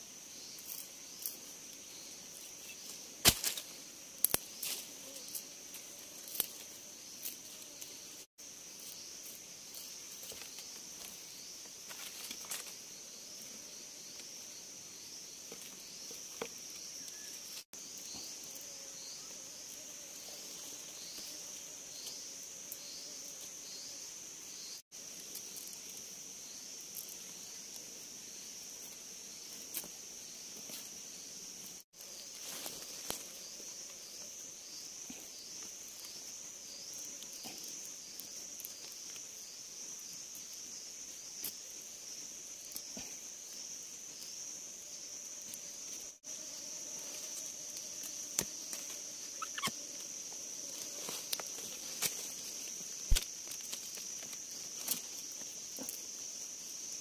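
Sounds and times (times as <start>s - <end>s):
insects droning: 0.0s - 57.0s
clicks and rustles of sticks: 2.4s - 7.9s, 11.8s - 12.8s, 32.0s - 33.4s, 50.7s - 56.3s.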